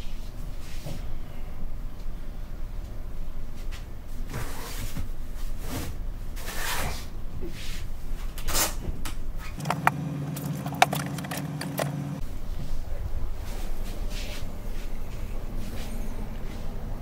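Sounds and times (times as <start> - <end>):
low steady hum: 9.5 - 16.3.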